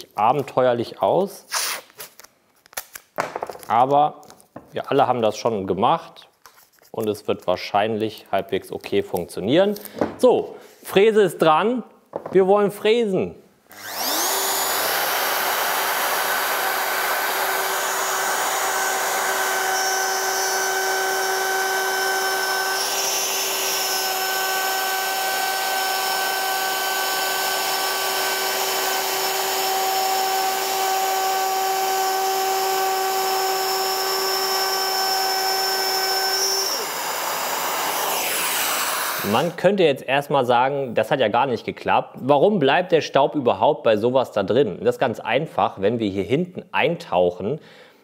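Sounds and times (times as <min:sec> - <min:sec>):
router motor whining: 0:13.7 - 0:39.6
workshop vacuum running: 0:13.7 - 0:39.6.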